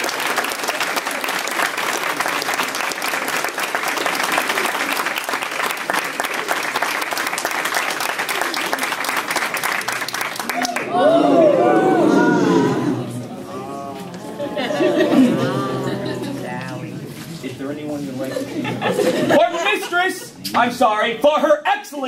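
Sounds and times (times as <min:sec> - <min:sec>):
crowd applauding: 0:00.0 - 0:13.2.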